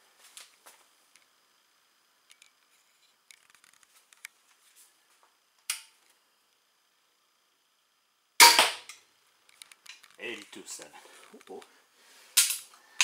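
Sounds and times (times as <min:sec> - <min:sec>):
bolt hitting target: 0:08.4 - 0:09.0.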